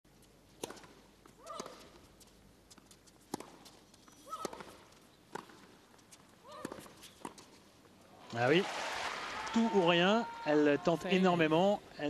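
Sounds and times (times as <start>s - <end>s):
rackets striking tennis ball: 0.6s - 2.0s, 3.2s - 5.8s.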